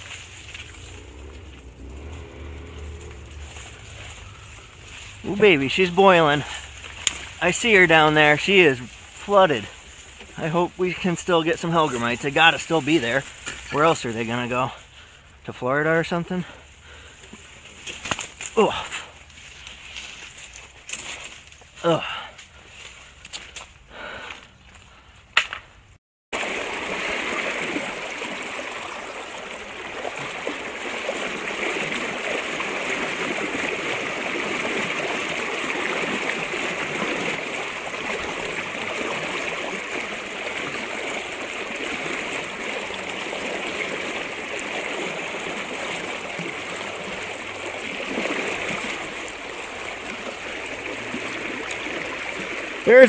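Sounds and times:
river water rushing around legs: 0.0 - 15.4, 26.3 - 53.0.

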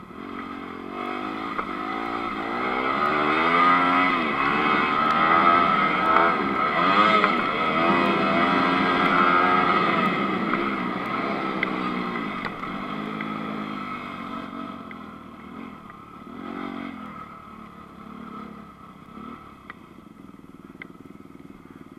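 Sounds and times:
motocross bike engine revving: 0.0 - 19.7
light ticks: 10.0 - 13.4, 14.8 - 15.1, 19.6 - 19.9, 20.7 - 21.0.

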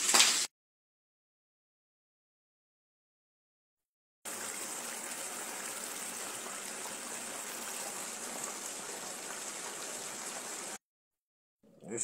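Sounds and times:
food sizzling in a pan: 0.0 - 0.5, 4.3 - 10.8.

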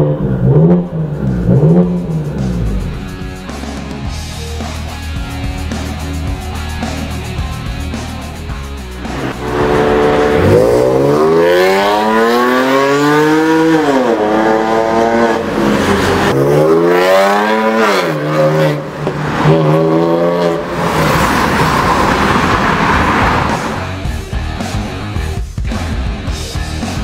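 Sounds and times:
car engine accelerating with gear shifts: 0.0 - 3.2, 8.9 - 24.0
rushing noise: 8.3 - 14.4, 18.1 - 24.0.

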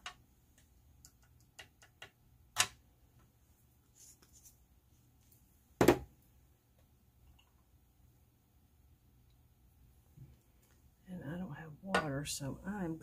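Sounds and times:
hands clicking and tapping supplies: 0.0 - 2.8
object knocking on desk: 5.8 - 6.1.

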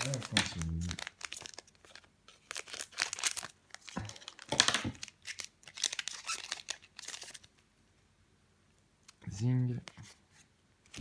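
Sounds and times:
foil wrapper crinkling and tearing: 0.0 - 7.6.

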